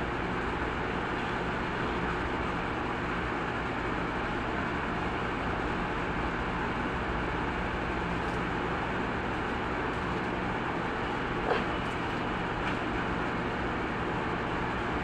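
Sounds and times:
mechanical background noise: 7.5 - 15.0.

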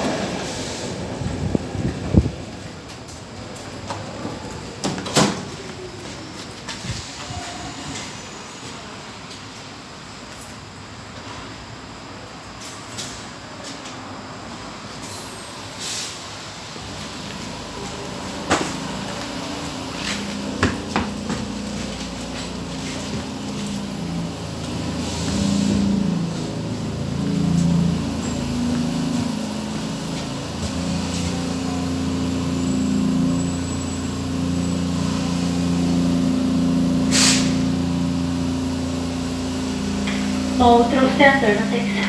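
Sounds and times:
train motor hum: 0.0 - 12.5, 13.6 - 42.0
burst of hiss: 15.0 - 16.3, 37.1 - 37.7.

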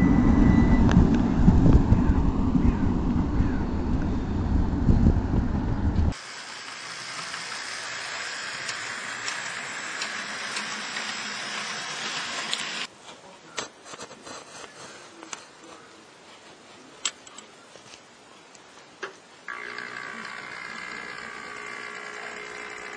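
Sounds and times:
model tram motor whirring: 5.8 - 12.9, 19.5 - 22.9.

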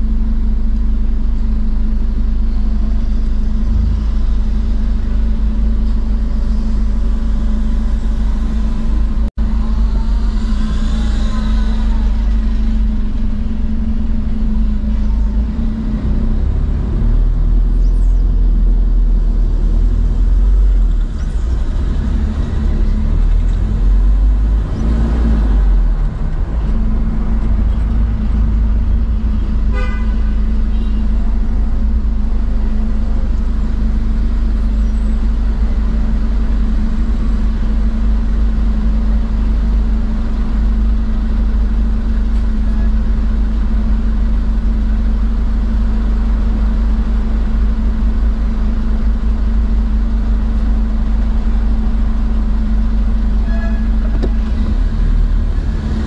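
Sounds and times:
car engine running: 0.0 - 56.0
car horn toot: 29.7 - 31.1, 53.4 - 54.2.

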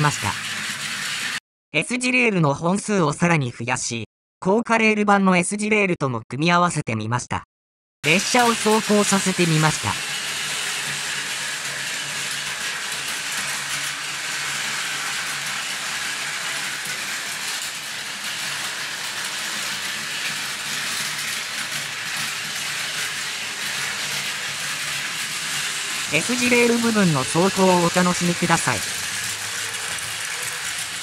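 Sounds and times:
toy train motors whirring: 0.0 - 1.4, 8.0 - 31.0
wheels rattling over rail joints: 0.0 - 1.4, 8.0 - 31.0.

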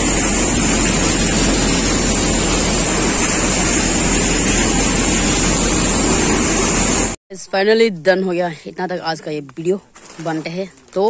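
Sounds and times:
high mechanical whine: 0.0 - 7.2
thresher running: 0.0 - 7.2.

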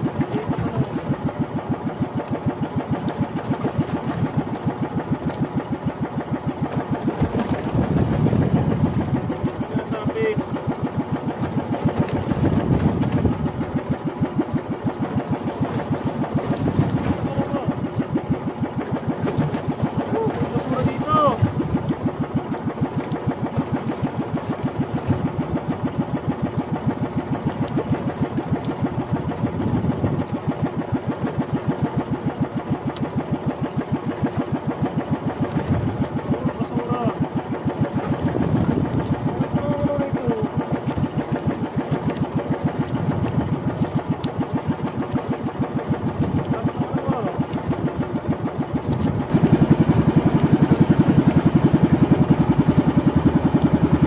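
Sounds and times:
small boat engine running: 0.0 - 54.0.

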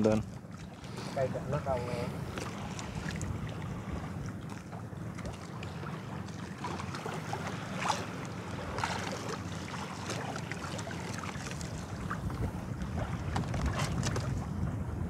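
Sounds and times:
wind rumble on microphone: 0.0 - 9.3, 10.8 - 15.0
water splashing against boat hull: 0.0 - 14.8.

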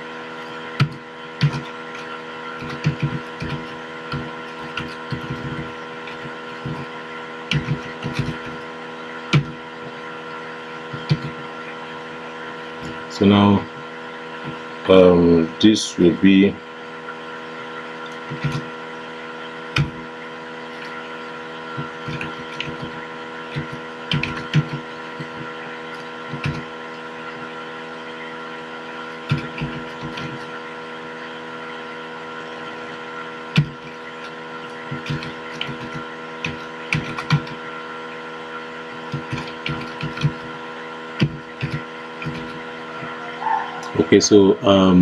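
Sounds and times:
electrical hum: 0.0 - 45.0
keyboard keys clicking: 34.9 - 37.6.

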